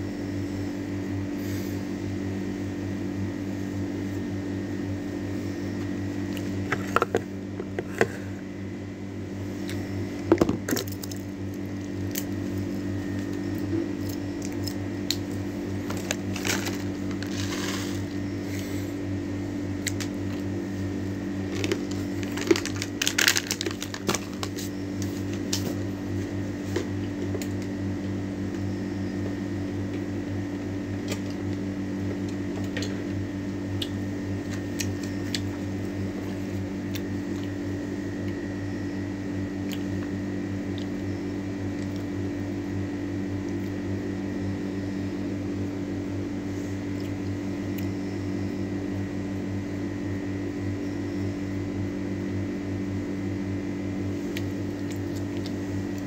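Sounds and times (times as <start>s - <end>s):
low electrical hum: 0.0s - 56.0s
plastic packet crinkling: 15.8s - 17.8s, 21.5s - 24.7s.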